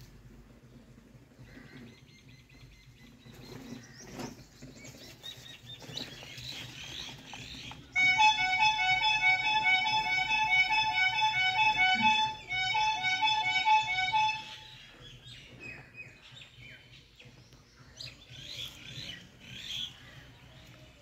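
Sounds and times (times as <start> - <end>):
small birds chirping: 0.6 - 8.0, 14.5 - 21.0
instrumental music with held notes: 8.0 - 14.8.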